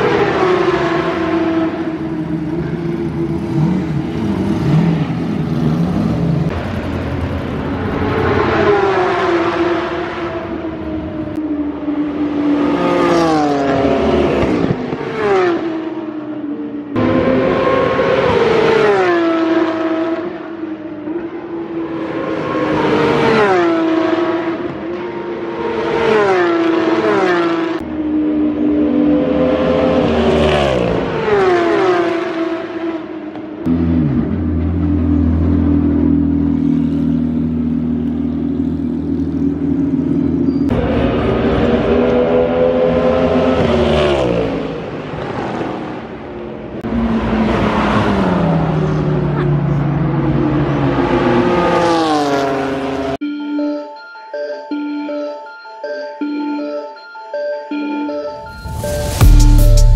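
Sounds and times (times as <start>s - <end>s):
race cars passing at full throttle: 0.0s - 53.2s
loud engine note: 58.4s - 59.9s.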